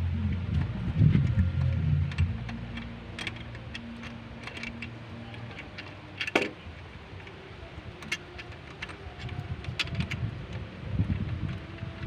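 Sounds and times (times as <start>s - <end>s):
low background drone: 0.0s - 12.0s
metal tools clinking: 2.4s - 6.6s, 7.2s - 10.2s.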